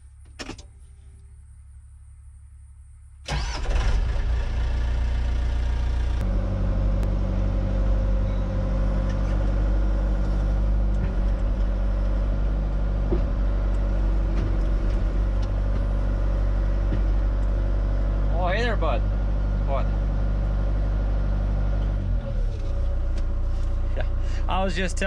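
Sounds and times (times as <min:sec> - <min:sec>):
diesel engine running: 0:03.2 - 0:25.0.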